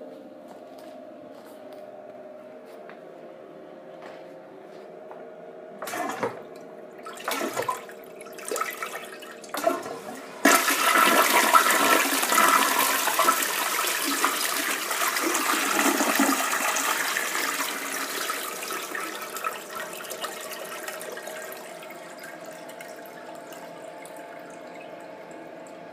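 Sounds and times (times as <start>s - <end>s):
toilet flushing water rush: 5.8s - 25.9s.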